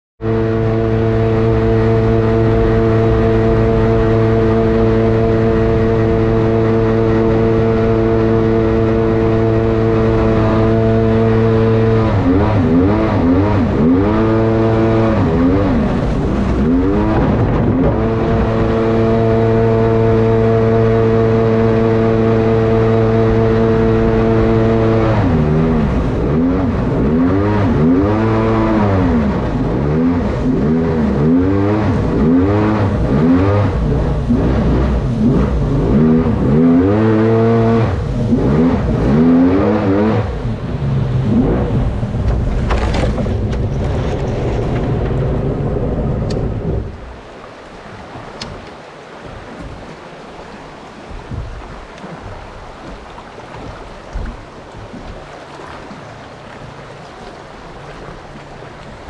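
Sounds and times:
jet boat engine running: 0:00.2 - 0:59.0.

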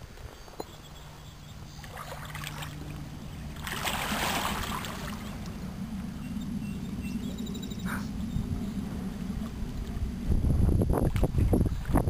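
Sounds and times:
wind rumbling on microphone: 0:00.0 - 0:12.0
small waves washing among rocks: 0:03.6 - 0:05.4.

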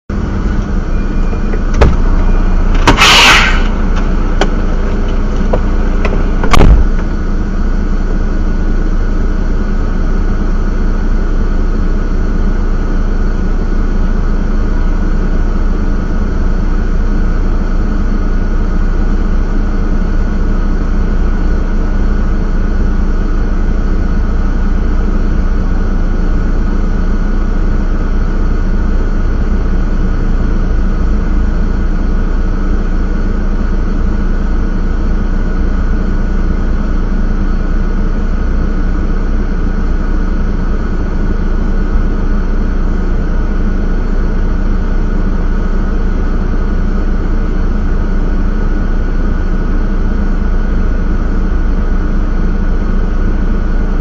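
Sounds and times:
diesel engine idling: 0:00.1 - 0:54.0
short loud hiss: 0:02.7 - 0:03.8
sharp knocks: 0:04.0 - 0:07.1.

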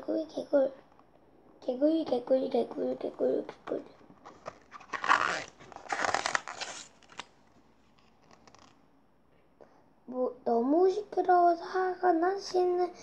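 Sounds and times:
paper page rustling: 0:04.1 - 0:08.8.

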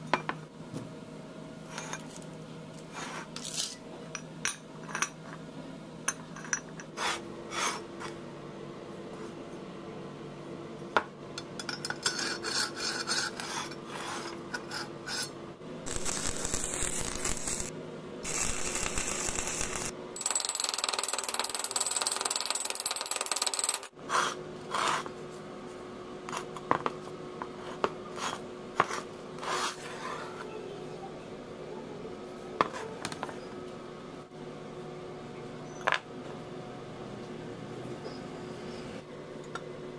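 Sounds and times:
scraping and rubbing on steel: 0:11.9 - 0:17.7
steel pieces clinking: 0:18.3 - 0:23.9.

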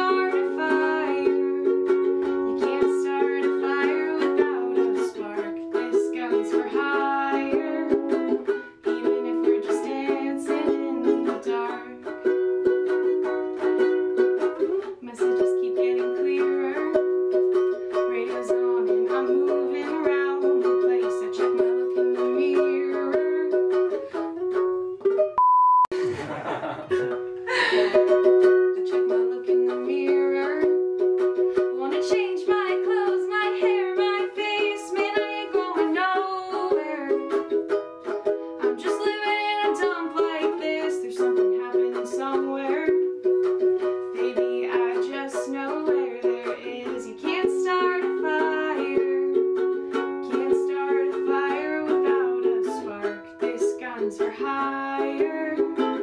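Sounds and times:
woman singing: 0:00.0 - 0:24.2, 0:27.5 - 0:37.6, 0:38.6 - 0:56.0
ukulele strumming: 0:00.0 - 0:56.0
short steady beep: 0:25.4 - 0:26.0.

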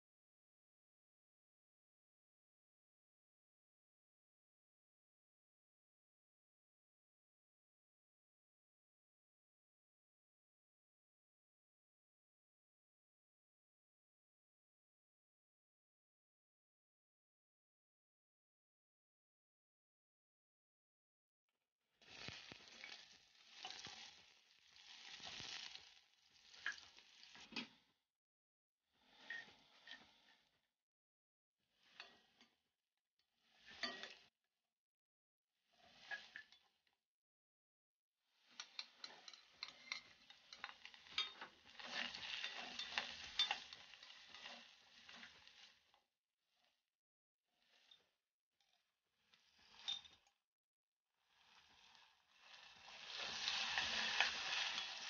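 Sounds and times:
onions sizzling in hot oil: 0:22.0 - 0:27.6, 0:33.4 - 0:34.2, 0:35.7 - 0:36.6, 0:38.4 - 0:45.9, 0:51.3 - 0:55.0
wooden spatula scraping pot: 0:22.2 - 0:24.2, 0:31.9 - 0:32.6, 0:33.5 - 0:34.3, 0:38.5 - 0:46.0, 0:52.6 - 0:55.0.

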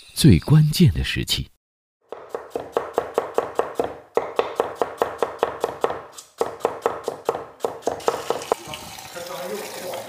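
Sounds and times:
cleaver chopping on wooden block: 0:02.1 - 0:08.6.

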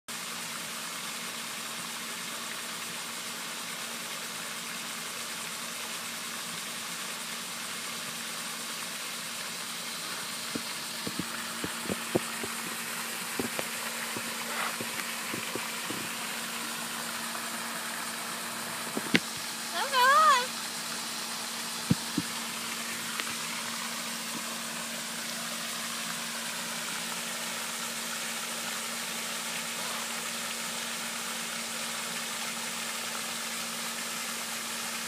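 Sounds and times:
fountain spray rushing: 0:00.1 - 0:35.0
low steady hum: 0:02.3 - 0:28.3
light knocks and taps: 0:18.9 - 0:19.4, 0:21.9 - 0:22.4.

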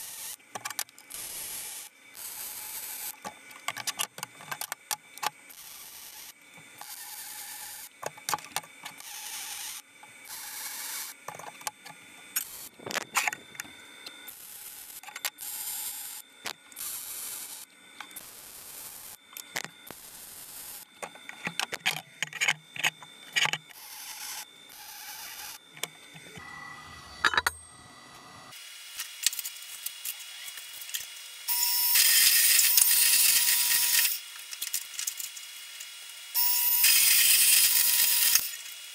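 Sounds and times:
band saw cutting steel: 0:31.5 - 0:34.2, 0:36.4 - 0:38.6.

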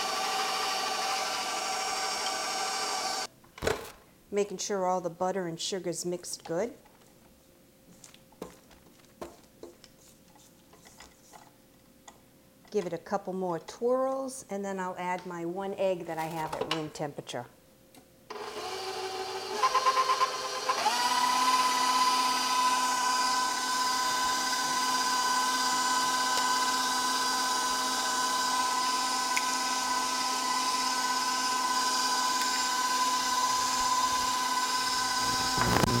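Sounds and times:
electric stand mixer whining: 0:00.0 - 0:03.3, 0:18.3 - 0:36.0.

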